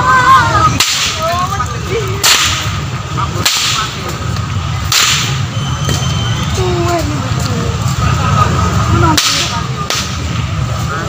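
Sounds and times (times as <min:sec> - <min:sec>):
whip cracking: 0:00.7 - 0:01.4, 0:02.2 - 0:02.8, 0:03.4 - 0:04.2, 0:04.8 - 0:05.4, 0:09.1 - 0:10.2.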